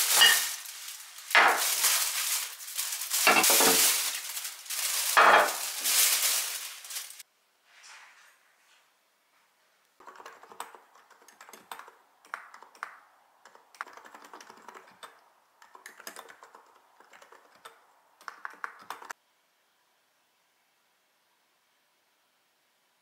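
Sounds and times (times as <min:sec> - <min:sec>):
mechanical keyboard typing: 0:10.0 - 0:12.8, 0:13.4 - 0:19.1.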